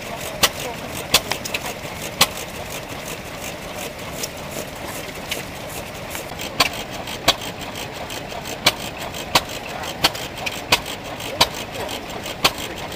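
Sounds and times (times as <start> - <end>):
stationary engine reports: 0.0 - 12.9
steady mechanical hum: 0.0 - 12.9.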